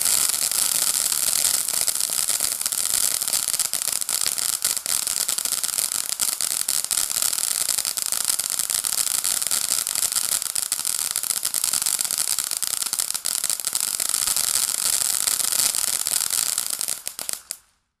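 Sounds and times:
firework fountain hissing: 0:00.0 - 0:17.7
firework crackling: 0:00.0 - 0:17.9.

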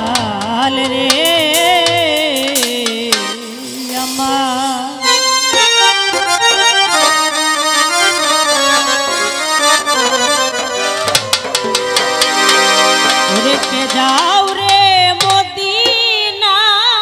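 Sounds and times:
sharp drum strikes: 0:00.0 - 0:05.8, 0:11.0 - 0:16.4
harmonium melody: 0:00.9 - 0:15.8.

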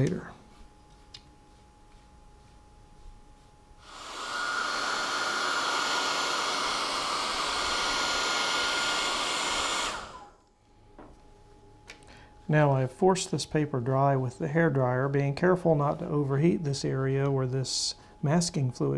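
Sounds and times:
hair dryer blowing: 0:03.8 - 0:10.4.

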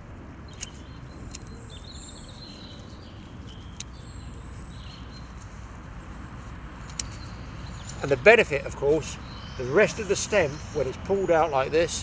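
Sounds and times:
small birds chirping: 0:00.4 - 0:12.0
dry stems clicking and rustling: 0:00.5 - 0:01.6, 0:03.3 - 0:04.0, 0:05.1 - 0:08.8.

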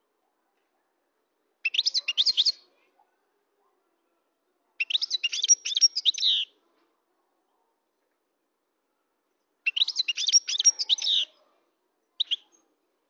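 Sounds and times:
goldfinch twittering song: 0:04.8 - 0:06.5, 0:09.7 - 0:11.3.

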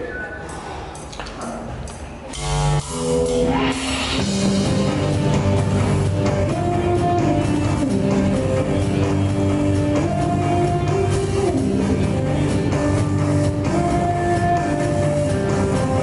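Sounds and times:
bass guitar: 0:02.3 - 0:16.0
drum kit: 0:02.3 - 0:16.0
electric guitars: 0:02.3 - 0:16.0.

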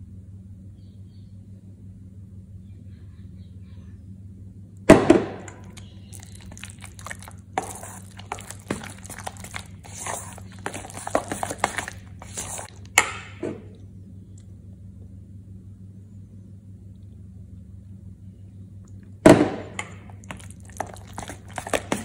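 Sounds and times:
low steady hum: 0:00.0 - 0:22.0
spoon scraping thick dip in bowl: 0:05.7 - 0:12.8, 0:20.1 - 0:22.0.

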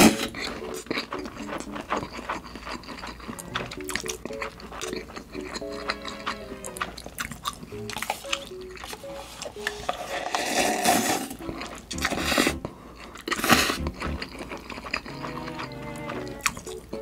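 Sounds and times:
slurping broth: 0:00.0 - 0:16.8
chewing and crunching: 0:00.0 - 0:17.0
background music plucked notes: 0:03.3 - 0:10.2, 0:11.4 - 0:12.8, 0:13.5 - 0:14.4, 0:15.1 - 0:17.0.

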